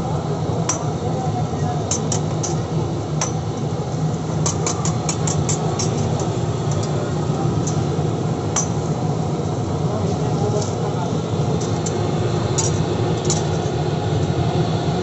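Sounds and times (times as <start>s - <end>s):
busy shop background noise: 0.0s - 15.0s.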